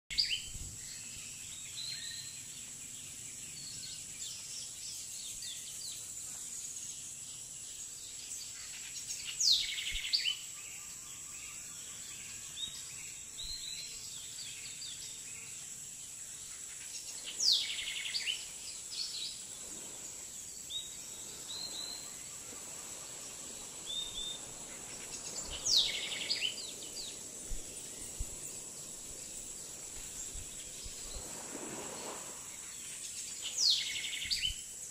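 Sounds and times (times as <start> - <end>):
bird chirps: 16.4 - 34.7.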